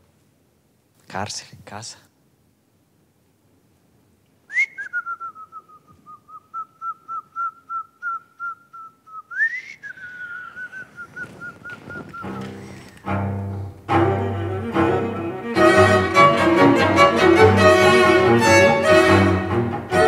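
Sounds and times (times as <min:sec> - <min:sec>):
warbling whistling: 0:04.5 - 0:13.0.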